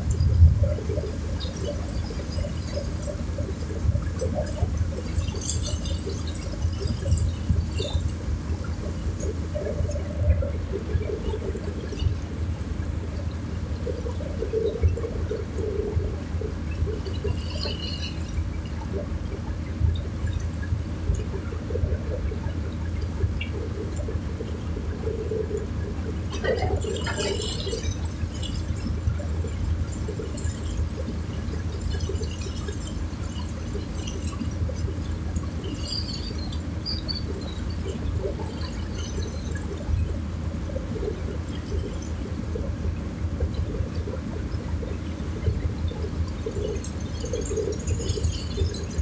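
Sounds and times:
steady low rumble: 0.0s - 32.1s
river water lapping and splashing: 0.0s - 49.0s.

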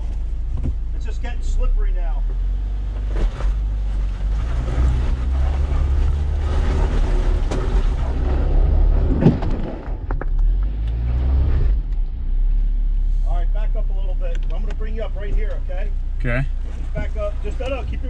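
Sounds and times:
off-road vehicle engine under load: 0.0s - 18.0s
knocks and crunches on rock: 3.0s - 10.7s.

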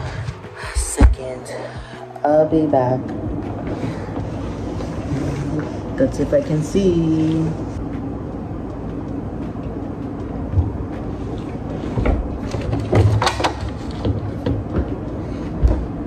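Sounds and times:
steady low rumble: 0.0s - 16.0s
knocks and clatters of handling: 11.4s - 16.0s.

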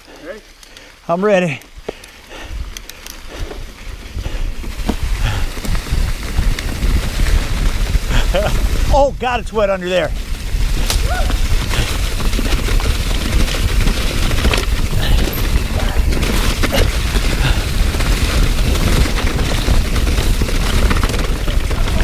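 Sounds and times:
wind buffeting on microphone: 1.8s - 22.0s
bike clattering over rocks: 10.7s - 22.0s.

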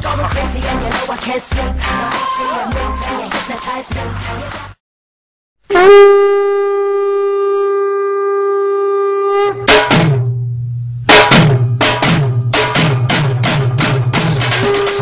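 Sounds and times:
horn-like note: 5.7s - 10.2s, 14.6s - 15.0s
heavy drum strikes: 9.6s - 10.5s, 11.1s - 15.0s.

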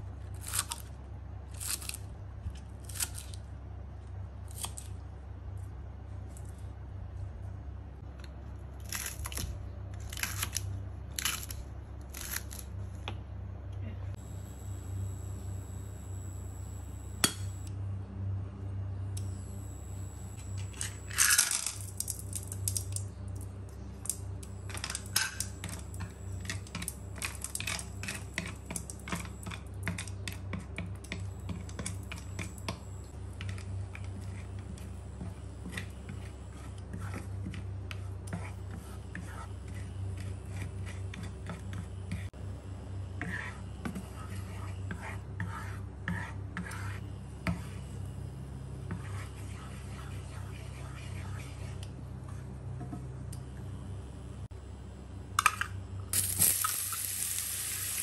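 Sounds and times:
low hum: 5.0s - 45.0s.

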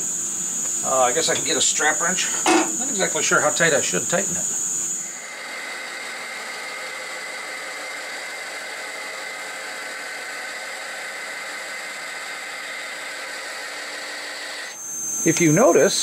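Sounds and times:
high whine: 0.0s - 5.4s, 14.7s - 16.0s
cutting tool hissing on metal: 0.0s - 16.0s
lathe spindle whirring: 0.0s - 16.0s.

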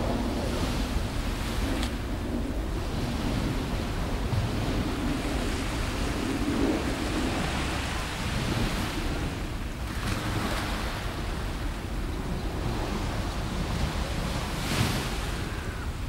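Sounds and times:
small waves washing onto shore: 0.0s - 16.0s
wind noise on microphone: 0.0s - 16.0s.

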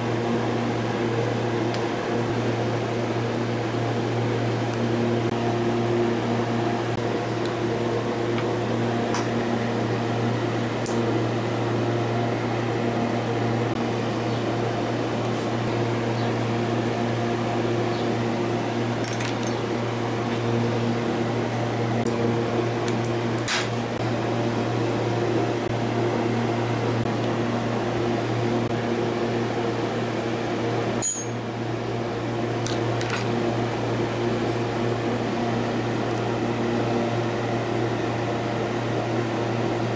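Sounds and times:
low machine hum: 0.0s - 39.9s.

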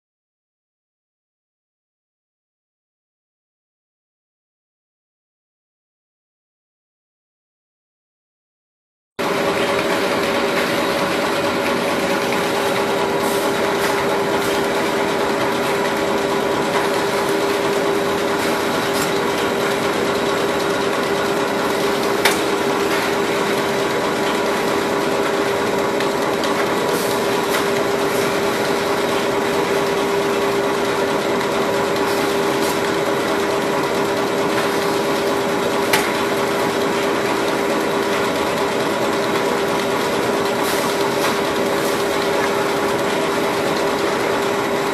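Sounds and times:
paper cutting machine humming: 9.2s - 44.9s.

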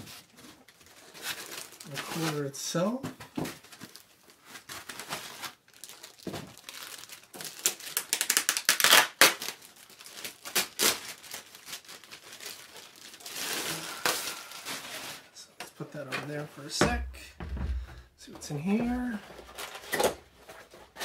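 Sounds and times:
plastic bag crinkling: 0.3s - 2.5s, 3.6s - 15.4s.

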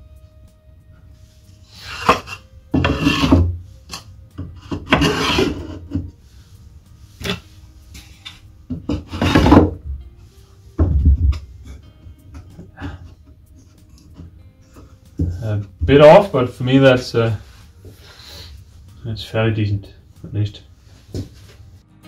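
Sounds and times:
wooden drawers scraping in cabinet: 1.9s - 3.5s, 4.7s - 6.1s, 8.7s - 9.8s.

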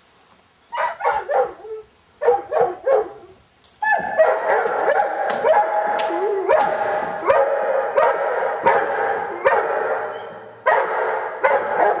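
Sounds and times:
large dog barking aggressively: 2.2s - 3.3s, 3.9s - 12.0s.

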